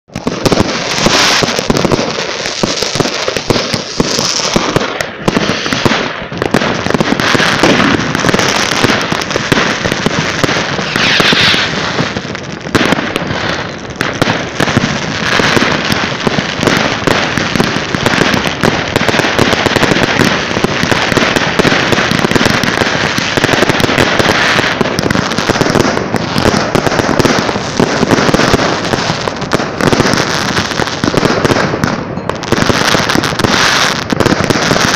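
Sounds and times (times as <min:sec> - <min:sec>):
fireworks bangs and crackling: 0:00.0 - 0:34.9.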